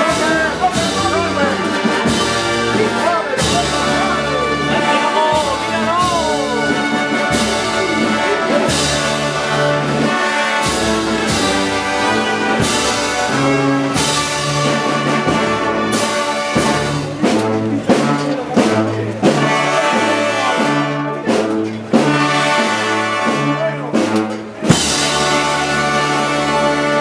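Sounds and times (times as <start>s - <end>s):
sharp percussion hits: 0.0s - 19.6s
brass band playing march: 0.0s - 27.0s.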